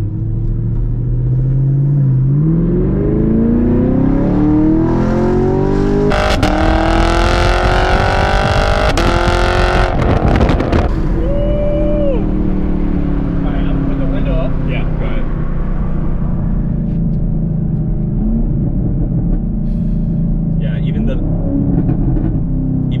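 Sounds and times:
car engine accelerating hard: 0.0 - 11.2.

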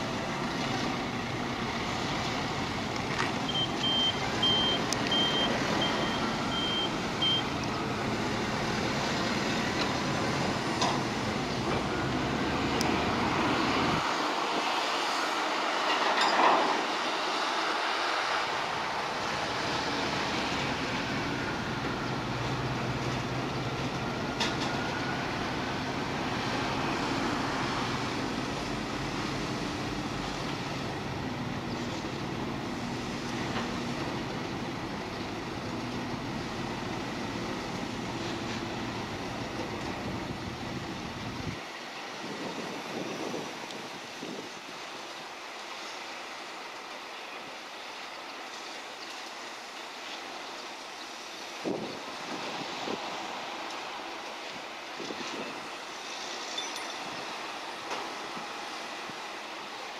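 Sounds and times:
heavy machinery engines running: 0.0 - 41.6
short high warning beeps: 3.5 - 7.5.

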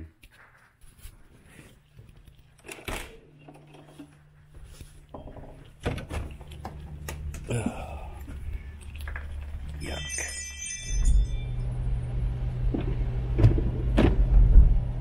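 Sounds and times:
low steady hum: 0.9 - 15.0.

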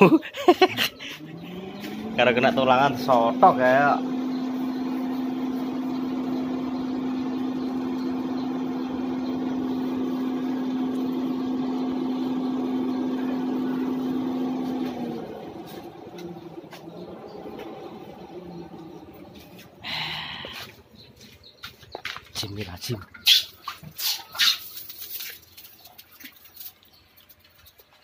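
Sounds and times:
electric blower humming: 0.0 - 21.3.

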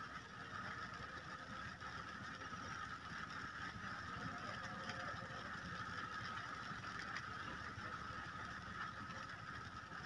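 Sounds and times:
rain on car windshield: 0.0 - 10.0.

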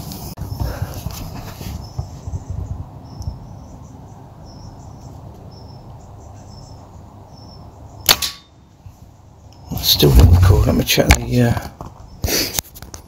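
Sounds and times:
air rifle shot: 8.1 - 8.5.

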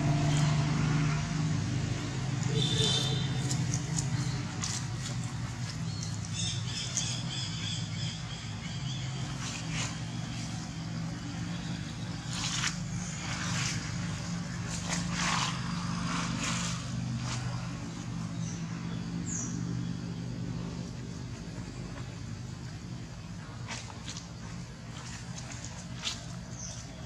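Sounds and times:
steady low hum: 0.0 - 27.0
rustles in leaf litter: 8.2 - 18.4.

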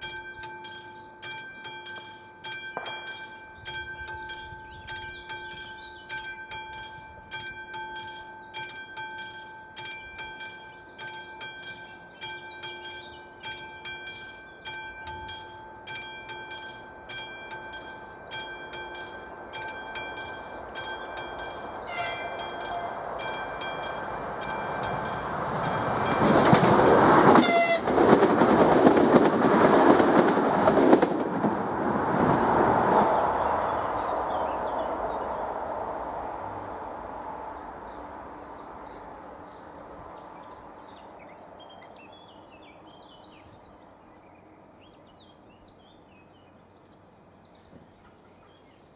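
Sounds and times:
level crossing warning bell: 0.0 - 29.1
train passing with rushing noise: 0.0 - 48.9
high wavering squeal: 17.6 - 29.0
train horn blast: 21.8 - 23.5, 25.1 - 28.1.

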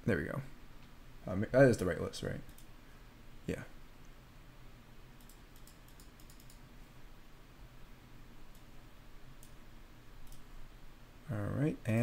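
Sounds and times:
low steady hum: 0.0 - 12.0
keyboard typing clicks: 2.5 - 2.7, 5.2 - 6.6, 10.2 - 10.5.

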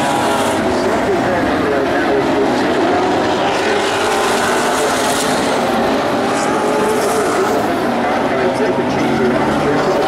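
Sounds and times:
race car engines passing: 0.0 - 10.0.

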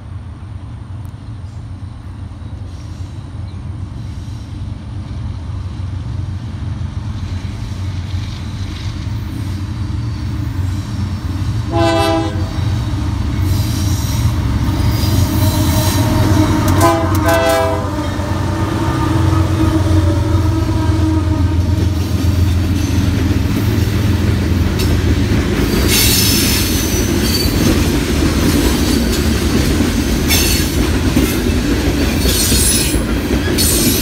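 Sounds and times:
diesel locomotive engine rumble: 0.0 - 34.0
train horn blasts: 11.6 - 12.8, 14.7 - 22.3.

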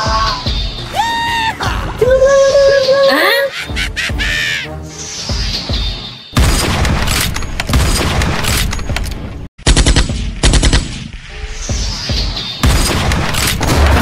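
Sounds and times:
loud rapid bangs: 6.4 - 8.8, 12.2 - 14.0.

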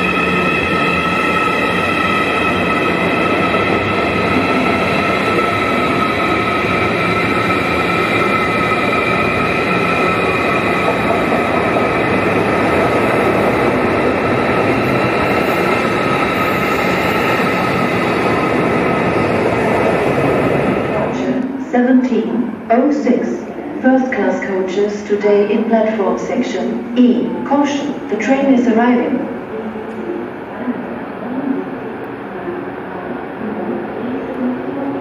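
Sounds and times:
train wheels rushing: 0.0 - 21.4.

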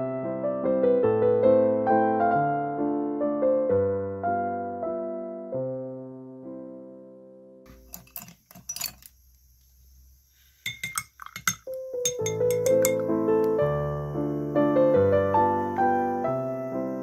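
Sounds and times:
soft piano music: 0.0 - 7.7, 11.7 - 17.0
brush clinking against glass: 7.7 - 9.2, 10.6 - 13.1.

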